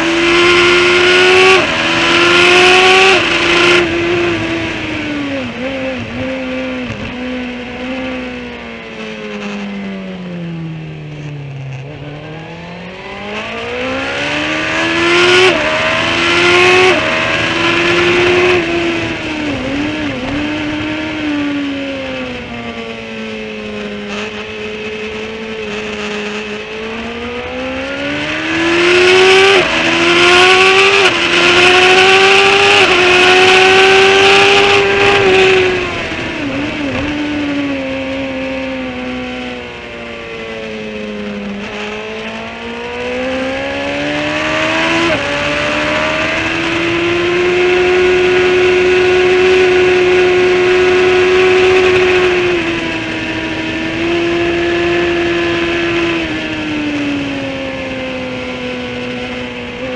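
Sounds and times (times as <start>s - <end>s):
motorcycle engine revving: 0.0s - 59.9s
wind rush: 28.3s - 38.5s.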